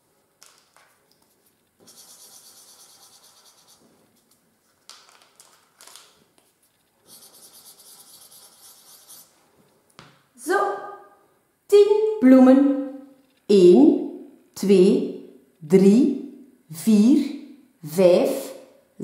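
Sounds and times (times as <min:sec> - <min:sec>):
marker scribbling on paper: 0:01.8 - 0:04.3, 0:07.0 - 0:09.4.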